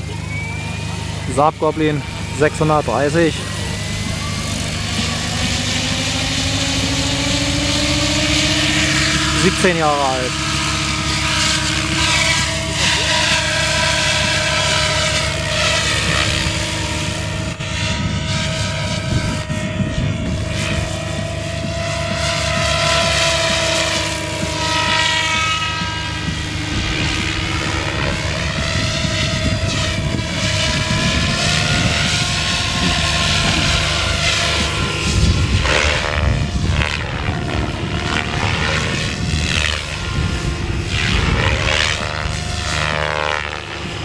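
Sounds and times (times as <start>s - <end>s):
rc helicopter motor whine: 0.0s - 44.0s
rotor blades swishing: 0.0s - 44.0s.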